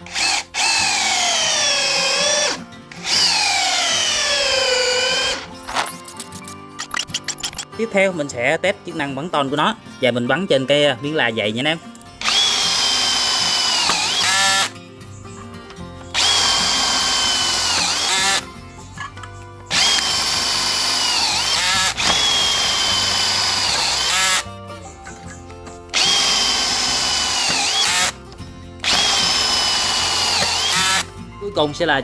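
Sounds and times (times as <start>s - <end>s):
cordless drill whining: 0.0s - 5.6s, 12.2s - 14.7s, 16.1s - 18.5s, 19.7s - 24.5s, 25.9s - 28.2s, 28.8s - 31.1s.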